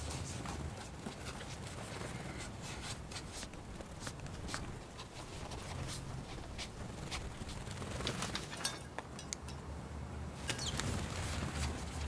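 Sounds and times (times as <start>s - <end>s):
light ticks and scratches: 0.0s - 8.7s
low room hum: 0.0s - 12.0s.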